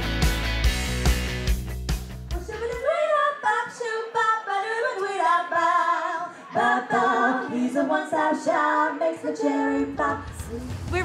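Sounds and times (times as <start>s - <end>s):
women singing in harmony: 2.4s - 11.0s.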